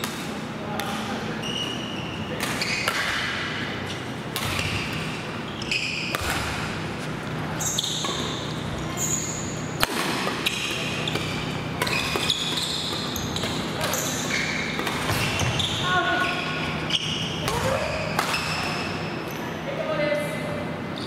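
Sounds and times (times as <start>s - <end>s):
shoes squeaking on court floor: 1.3s - 3.1s, 3.8s - 6.4s, 7.0s - 19.5s
rackets striking shuttlecock: 4.3s - 5.2s, 6.0s - 7.1s, 9.8s - 15.6s.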